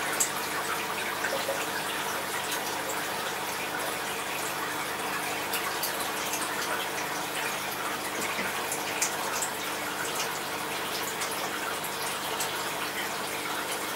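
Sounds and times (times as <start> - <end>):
aquarium water circulating: 0.0 - 13.9
faint pump hum: 0.0 - 13.9.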